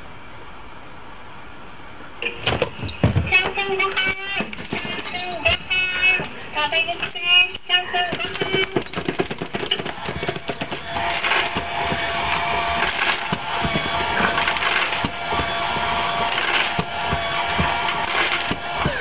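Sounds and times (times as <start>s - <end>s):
mechanical whir: 8.8s - 19.0s.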